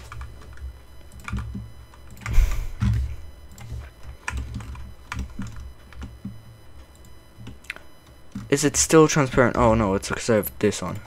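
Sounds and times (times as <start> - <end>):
computer keyboard keys clicking: 0.0 - 6.3.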